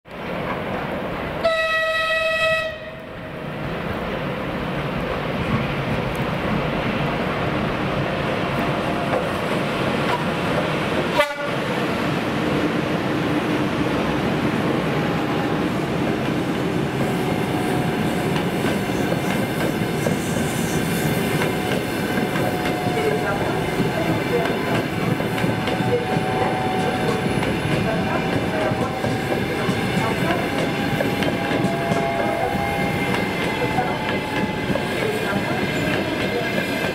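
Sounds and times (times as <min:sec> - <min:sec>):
electric train passing: 0:00.1 - 0:36.9
rail joint clicks: 0:05.0 - 0:06.9, 0:08.5 - 0:11.6, 0:16.0 - 0:36.9.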